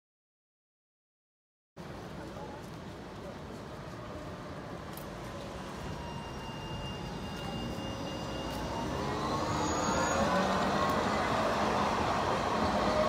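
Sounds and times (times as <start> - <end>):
tram approaching: 1.8 - 13.0
tram motor whine: 4.0 - 13.0.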